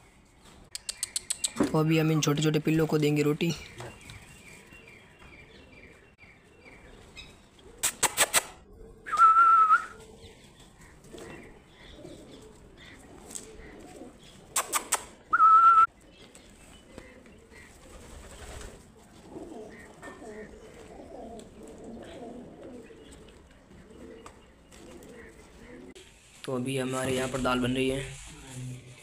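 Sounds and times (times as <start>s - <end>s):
tongue clicks: 0.7s - 1.6s, 7.8s - 9.3s, 14.5s - 15.2s
person whistling high: 9.1s - 9.9s, 15.3s - 15.9s.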